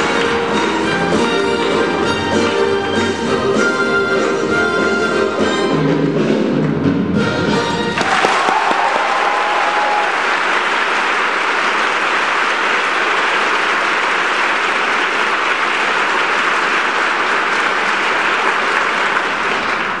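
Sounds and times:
audience applauding: 8.0 - 20.0.

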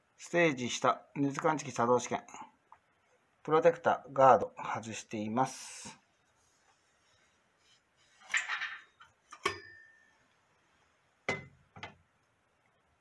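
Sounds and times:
metallic clink with ring: 9.4 - 10.1.

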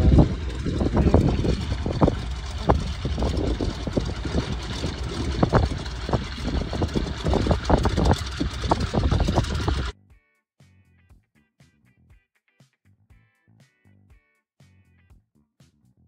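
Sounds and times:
floatplane engine and propeller: 0.0 - 9.9
wind buffeting microphone: 0.0 - 9.9.

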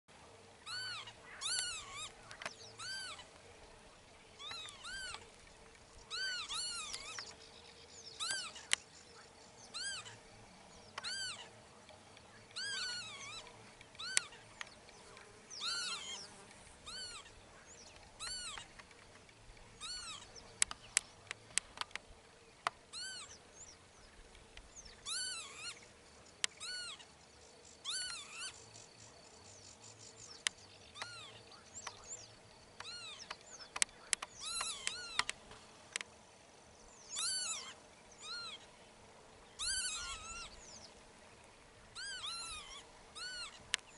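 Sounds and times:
lapwings calling: 0.6 - 3.5, 4.3 - 7.4, 8.1 - 10.3, 10.9 - 18.9, 19.7 - 21.6, 22.7 - 23.7, 24.7 - 27.1, 27.7 - 28.6, 30.0 - 35.5, 37.0 - 38.7, 39.5 - 41.0, 41.8 - 43.9
sharp clicks: 20.6 - 22.0, 32.8 - 36.1.

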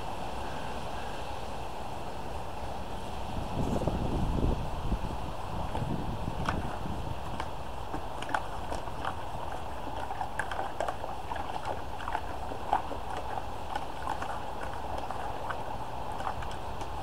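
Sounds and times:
water sloshing in bucket: 5.7 - 17.0.

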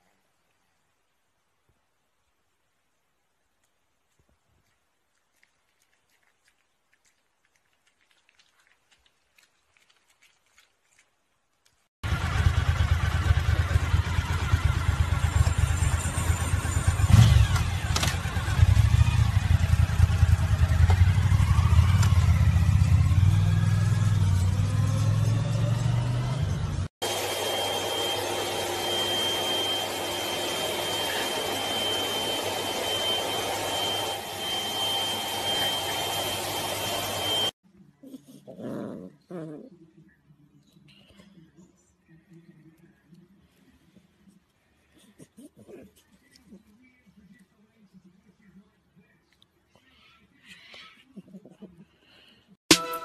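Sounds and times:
motorcycle engine revving: 12.0 - 37.5.

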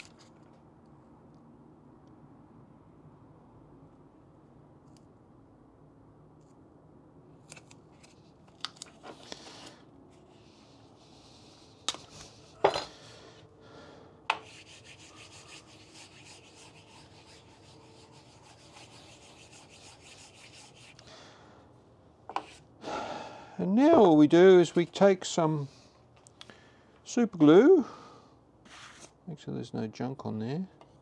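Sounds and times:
tape being rubbed down: 14.4 - 21.0, 28.7 - 29.2.

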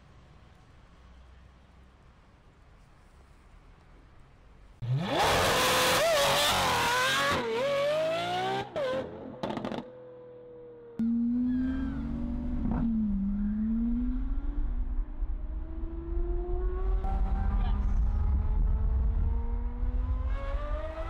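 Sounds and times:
car engines revving: 4.8 - 9.9, 11.0 - 21.0.

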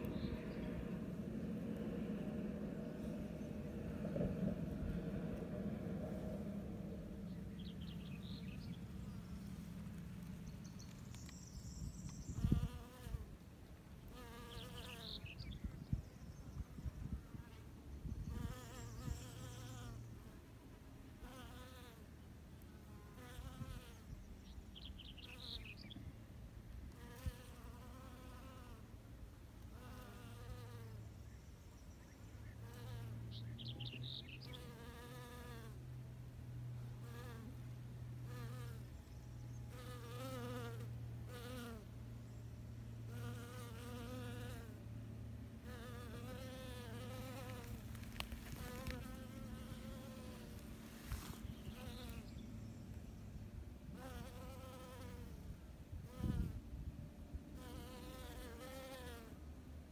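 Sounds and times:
bee buzzing: 14.1 - 15.2, 32.6 - 33.2, 34.5 - 35.8, 37.0 - 37.6, 38.2 - 38.9, 39.7 - 41.9, 43.1 - 44.8, 45.6 - 52.4, 54.0 - 55.3, 57.6 - 59.4.

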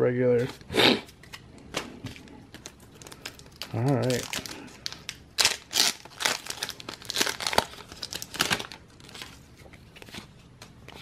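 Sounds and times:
foil wrapper crinkling and tearing: 2.6 - 9.4.

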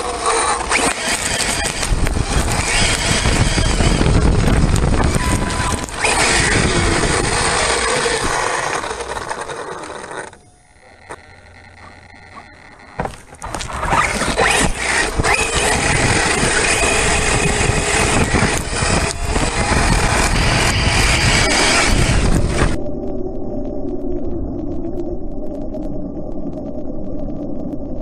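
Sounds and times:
electric motor whining: 0.0 - 22.8
wind rushing: 1.8 - 8.4, 13.8 - 23.7.

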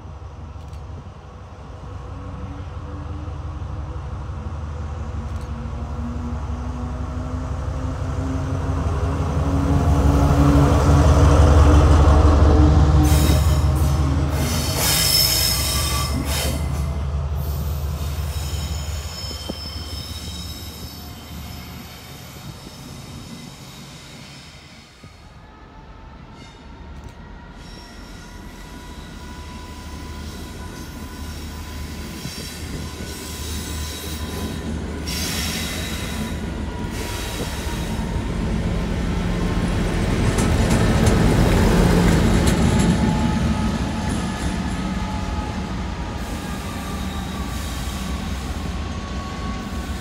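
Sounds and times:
diesel locomotive engine rumble: 0.0 - 50.0
high-pitched squeal: 13.0 - 25.0.

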